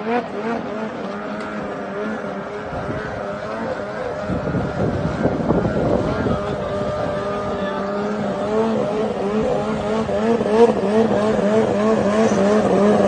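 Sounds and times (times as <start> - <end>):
snowmobile engine at high revs: 0.0 - 13.0
wind buffeting microphone: 2.6 - 10.8.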